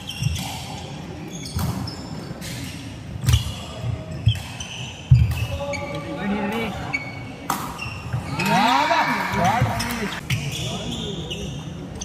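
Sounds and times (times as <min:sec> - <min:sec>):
shoes squeaking: 0:00.0 - 0:06.2.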